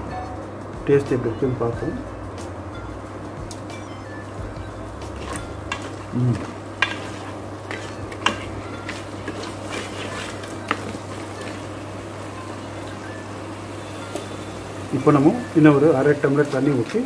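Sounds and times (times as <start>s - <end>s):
gravy sizzling: 4.2s - 17.0s
spatula stirring: 5.0s - 17.0s
spatula knocking on pot: 5.2s - 11.6s.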